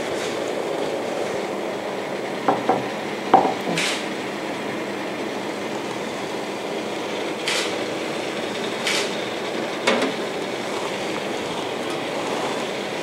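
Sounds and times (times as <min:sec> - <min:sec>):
water boiling hard: 0:00.0 - 0:13.0
ceramic dish knocks on wood: 0:03.4 - 0:03.7.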